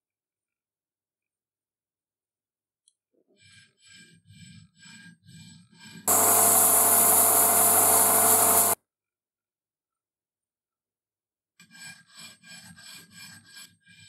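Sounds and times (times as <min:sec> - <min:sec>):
metal part rubbed on abrasive surface: 0:06.0 - 0:08.8
abrasive cloth hissing on metal: 0:06.1 - 0:08.8
lathe motor hum: 0:06.1 - 0:08.8.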